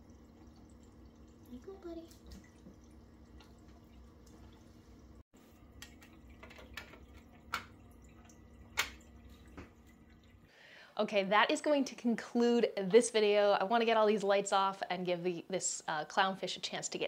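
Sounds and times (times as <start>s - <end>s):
aquarium water dripping: 0.0s - 10.6s.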